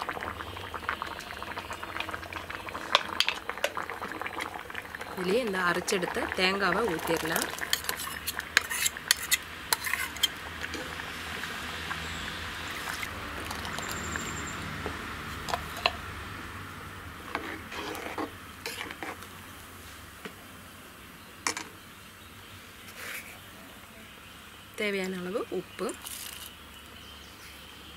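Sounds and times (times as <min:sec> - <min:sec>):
metal ladle clinking and scraping: 0:07.5 - 0:11.0, 0:17.3 - 0:19.2.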